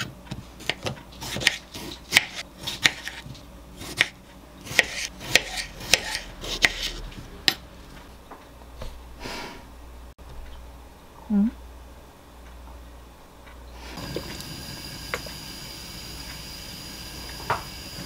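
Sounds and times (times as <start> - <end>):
knife cutting tomatoes on wood: 0.0 - 3.2, 3.8 - 7.0.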